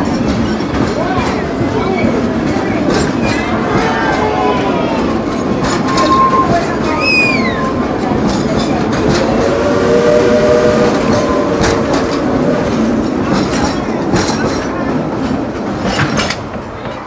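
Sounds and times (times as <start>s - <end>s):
train wheels rumbling on rails: 0.0s - 17.0s
wheels clicking over rail joints: 0.0s - 17.0s
faint wheel squeal: 5.8s - 7.8s.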